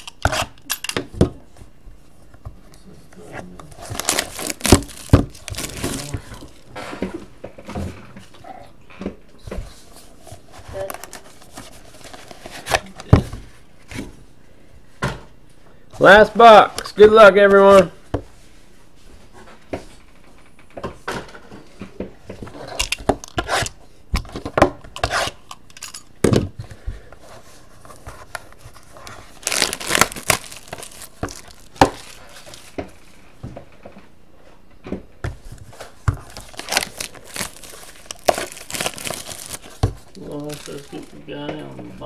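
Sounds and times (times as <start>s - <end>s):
plastic wrap tearing and crinkling: 0.0s - 0.5s, 3.7s - 6.7s, 10.7s - 12.9s, 28.2s - 32.8s, 36.2s - 41.2s.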